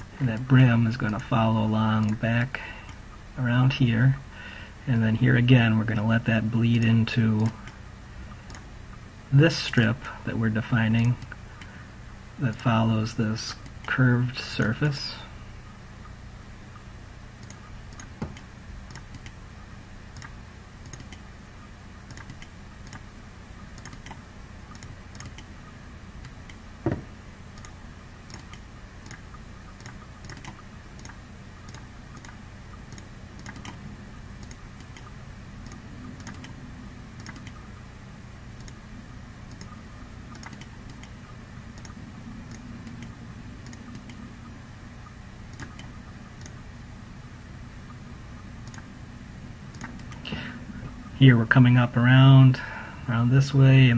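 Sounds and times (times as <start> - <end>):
steady low hum: 0.0 - 53.9
computer mouse clicking: 6.8 - 8.7, 17.4 - 19.4, 20.1 - 21.3, 22.0 - 23.1, 23.8 - 25.5, 27.6 - 33.8, 34.4 - 36.6, 37.2 - 37.7, 38.6 - 38.8, 39.5 - 44.2, 45.5 - 46.6, 48.6 - 48.9, 49.7 - 50.2
loud knock: 26.8 - 27.1.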